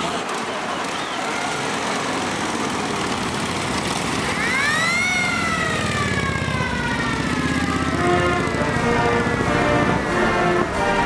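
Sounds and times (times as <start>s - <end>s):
vehicle engines running: 0.0s - 11.0s
police siren wail: 0.8s - 2.3s, 4.0s - 11.0s.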